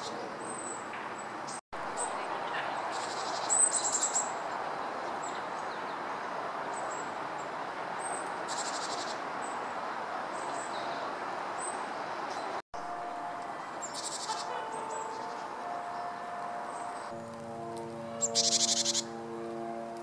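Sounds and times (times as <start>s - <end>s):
bird buzzy chatter: 13.8s - 16.2s
bird calling high short notes: 13.8s - 19.4s.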